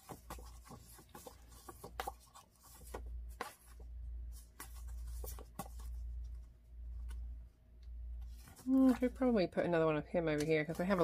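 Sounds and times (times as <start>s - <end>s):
paper taps scrapes and rustles: 0.0s - 7.2s.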